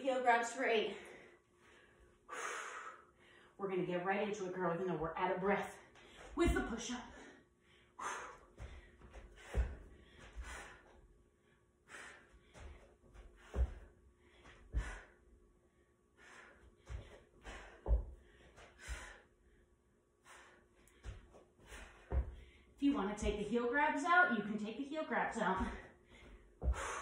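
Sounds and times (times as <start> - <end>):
woman breathing hard and gasping: 0.9 - 3.6, 7.1 - 15.3, 16.0 - 22.8, 25.6 - 27.0
dull thuds on rug-covered floor: 8.6 - 10.5, 17.8 - 18.2, 21.0 - 23.5.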